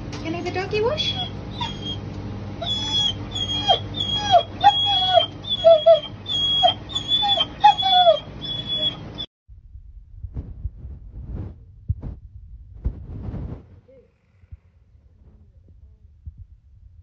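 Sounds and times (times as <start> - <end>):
steady low hum: 0.0 - 17.0
dog whimpering: 1.0 - 9.3.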